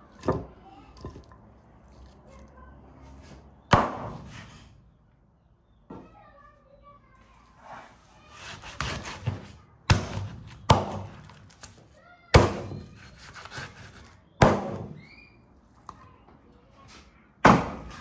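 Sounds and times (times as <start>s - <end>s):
heavy cleaver chops on board: 3.7s - 4.4s, 8.4s - 11.3s, 12.4s - 15.0s, 17.4s - 18.0s.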